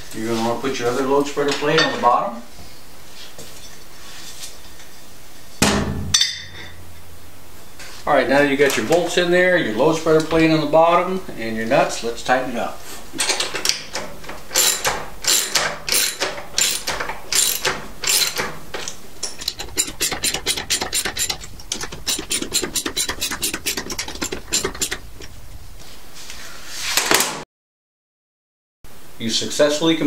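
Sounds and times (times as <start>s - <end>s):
ratchet wrench clicking: 14.6s - 18.5s, 19.3s - 25.4s.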